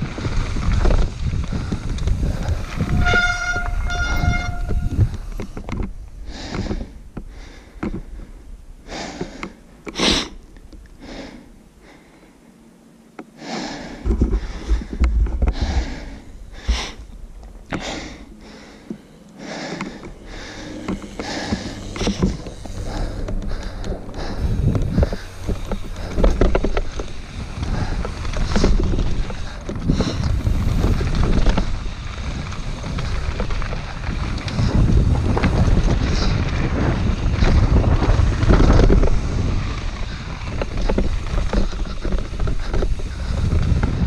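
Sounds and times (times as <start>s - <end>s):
wind buffeting microphone: 0.0s - 8.7s, 19.7s - 44.0s
bike rattling: 0.0s - 10.5s, 13.9s - 44.0s
short squealing tones: 2.8s - 5.0s
tyres crunching over gravel: 14.4s - 44.0s.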